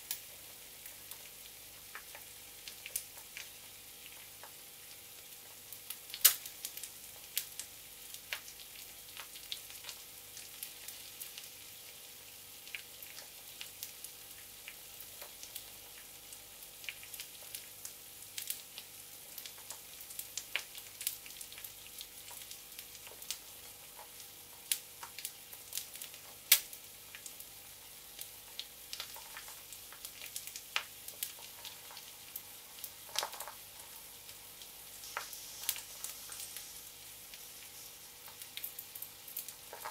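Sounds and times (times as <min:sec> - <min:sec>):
egg sizzling in oil: 0:00.0 - 0:39.9
fat popping and crackling: 0:06.0 - 0:07.5, 0:28.5 - 0:36.6, 0:38.2 - 0:39.9.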